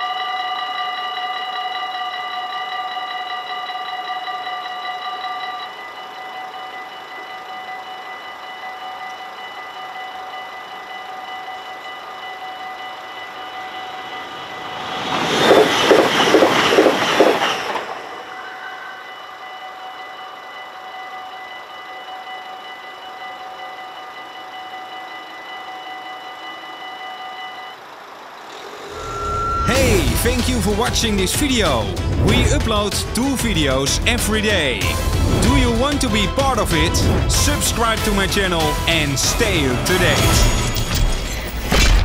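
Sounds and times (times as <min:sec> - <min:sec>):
level crossing bell ringing: 0:00.0 - 0:15.1, 0:17.7 - 0:41.4
train wheels clattering over rails: 0:14.5 - 0:18.3.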